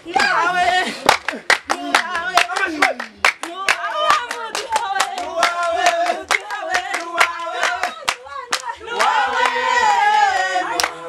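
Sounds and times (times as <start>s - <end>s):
group singing: 0.0s - 11.0s
hand-clapping: 0.2s - 9.6s, 10.7s - 11.0s.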